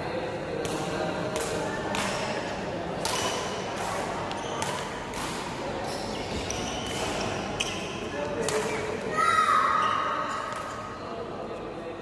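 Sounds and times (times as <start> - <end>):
rackets hitting shuttlecock: 0.6 - 2.4, 3.0 - 5.6, 6.3 - 7.8.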